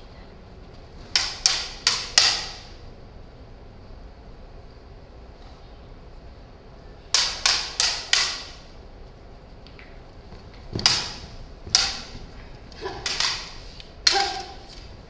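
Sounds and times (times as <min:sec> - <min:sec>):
toy lightsaber blades clacking: 0:01.1 - 0:02.8, 0:07.2 - 0:08.7, 0:10.8 - 0:14.9.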